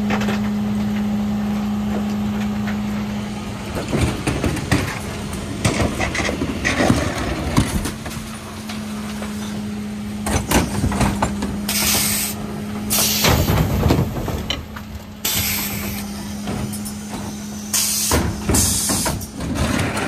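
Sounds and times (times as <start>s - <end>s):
truck engine humming: 0.0s - 20.0s
air hiss bursts: 11.7s - 13.5s, 15.3s - 16.2s, 17.5s - 19.3s.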